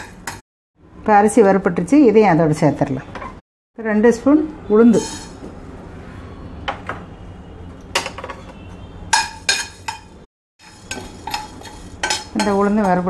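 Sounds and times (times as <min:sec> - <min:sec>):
metal spoon scraping frying pan: 0:04.9 - 0:05.4, 0:08.1 - 0:13.0.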